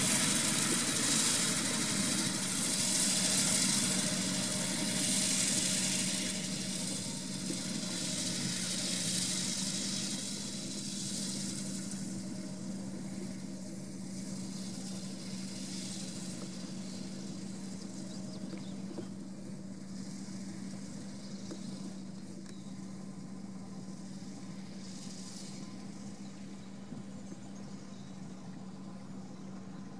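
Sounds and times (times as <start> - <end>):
steady high hiss: 0.0 - 29.9
tractor diesel engine running: 0.0 - 29.9.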